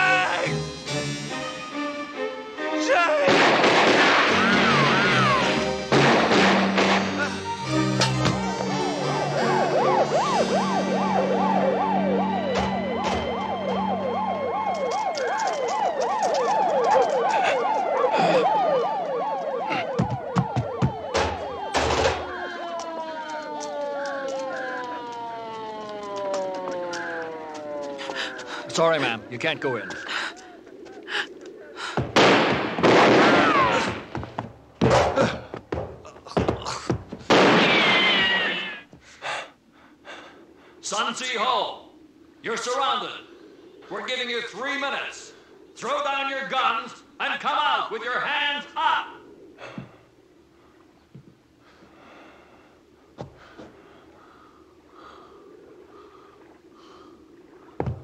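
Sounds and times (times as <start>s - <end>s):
gunfire and explosions: 3.2s - 7.4s, 32.0s - 35.2s
sharp single gunshots: 3.3s - 4.6s, 32.1s - 34.0s, 37.3s - 38.0s
wavering drawn-out cry: 4.2s - 5.7s, 22.2s - 31.9s, 37.6s - 38.9s
man breathing heavily: 17.2s - 18.9s, 19.6s - 20.2s, 28.0s - 28.8s, 29.9s - 32.2s, 38.9s - 40.8s, 49.6s - 50.8s, 51.6s - 57.8s.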